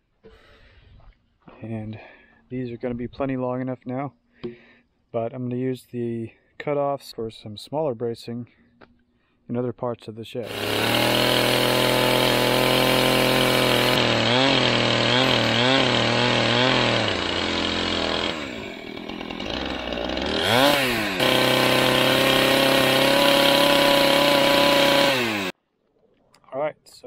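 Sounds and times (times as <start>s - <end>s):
chainsaw cutting timber: 10.4s - 25.6s.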